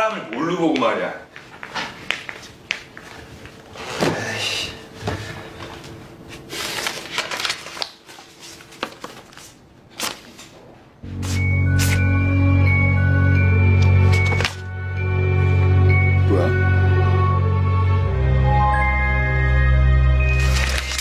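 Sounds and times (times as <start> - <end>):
paper rustling: 5.2 - 10.7, 20.3 - 21.0.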